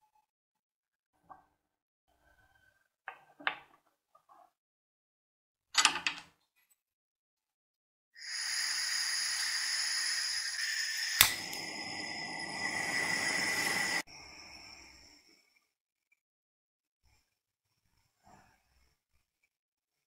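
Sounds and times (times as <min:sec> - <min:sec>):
flame rushing: 0:08.2 - 0:14.0
gas torch hissing: 0:08.2 - 0:15.0
igniter click: 0:10.6 - 0:14.0.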